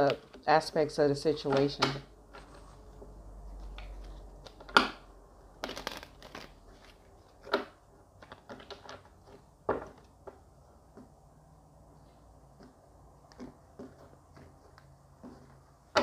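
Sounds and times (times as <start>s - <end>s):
cards shuffled on wooden table: 3.5s - 5.0s, 5.6s - 11.2s.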